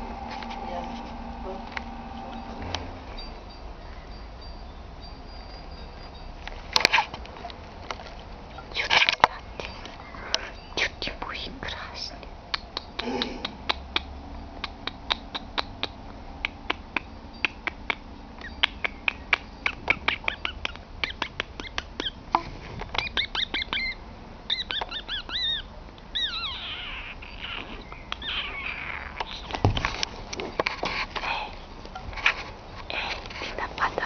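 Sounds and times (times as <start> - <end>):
squeaky chirping mouth sounds: 8.5 - 29.7
rapid tongue clicks: 12.5 - 22.2, 22.8 - 25.4, 27.4 - 29.6.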